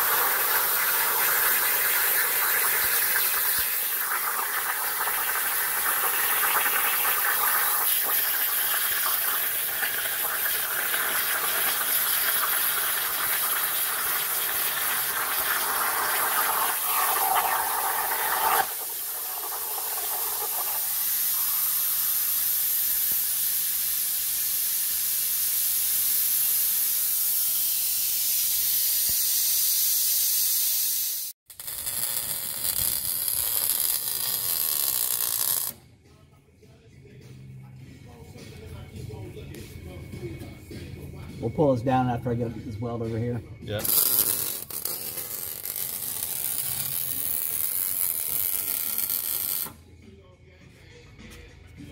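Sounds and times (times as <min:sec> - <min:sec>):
welding crackle: 0:00.0 - 0:09.0, 0:09.8 - 0:35.8, 0:43.8 - 0:49.8
plasma cutter hiss: 0:00.0 - 0:35.7.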